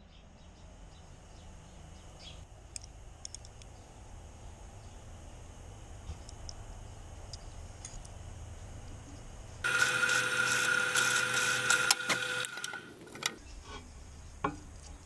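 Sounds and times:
clicks: 0:09.7 - 0:13.4
drill press boring into wood: 0:09.7 - 0:13.4.

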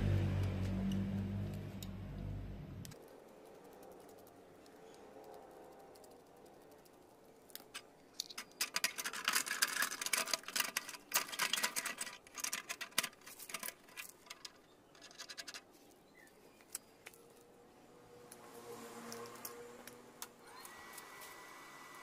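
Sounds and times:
small hard parts clicking and scratching: 0:02.9 - 0:16.0.

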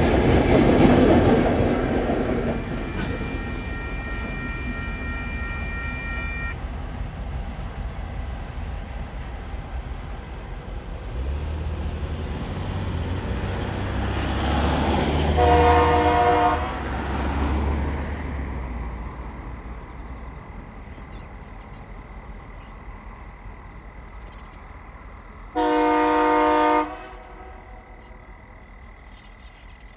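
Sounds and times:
diesel locomotive engine rumble: 0:00.0 - 0:29.9
locomotive horn blast: 0:02.6 - 0:06.6, 0:15.2 - 0:17.1, 0:25.5 - 0:27.9.

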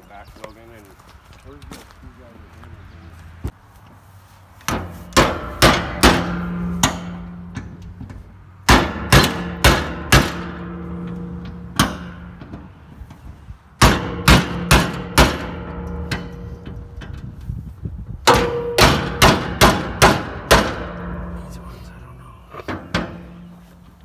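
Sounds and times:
metal tank ringing: 0:13.8 - 0:17.2, 0:18.2 - 0:21.6, 0:22.6 - 0:24.0.

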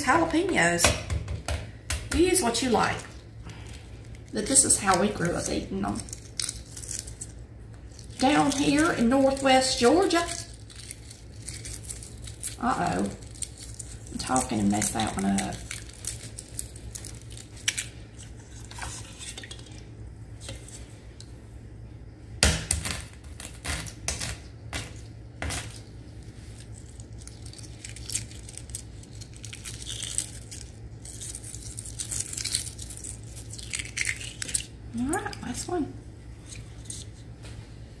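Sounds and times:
eggshell crackling: 0:01.7 - 0:21.3, 0:23.1 - 0:37.3.

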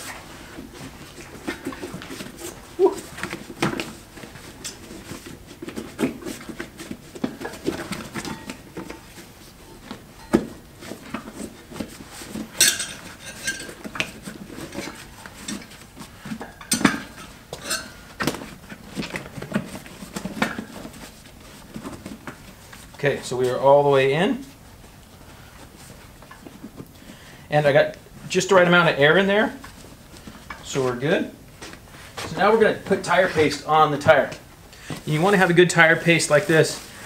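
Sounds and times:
wheel rim knocks and clinks: 0:05.7 - 0:20.9.

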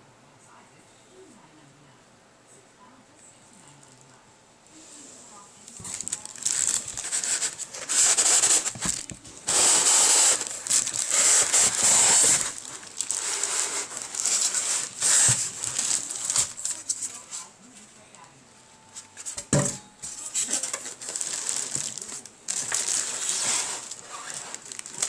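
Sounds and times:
plastic wrapping crinkling: 0:05.6 - 0:17.5, 0:20.0 - 0:25.0.

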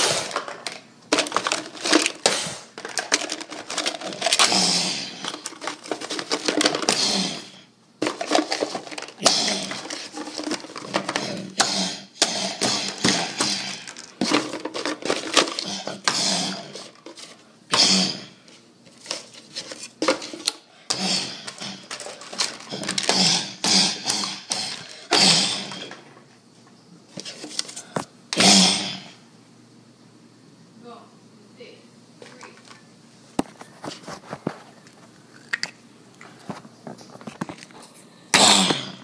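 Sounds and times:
plastic toys clattering: 0:00.0 - 0:11.8, 0:12.5 - 0:17.4, 0:18.5 - 0:26.1.

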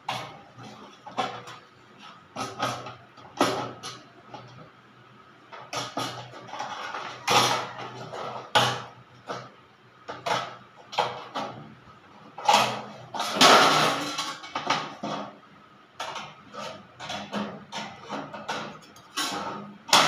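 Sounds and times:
sheet metal being handled and bent: 0:16.0 - 0:20.0.

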